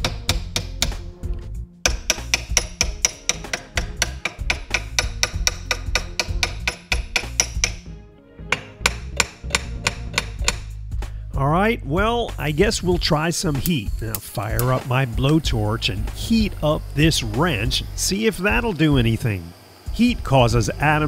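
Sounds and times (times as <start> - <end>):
background music with bass line: 0.0 - 19.1
hammer blows on metal: 1.9 - 7.9.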